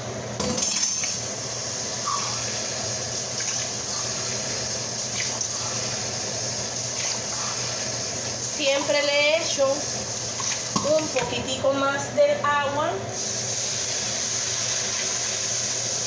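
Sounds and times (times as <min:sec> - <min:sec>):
water pouring into a pot: 0:13.2 - 0:16.0.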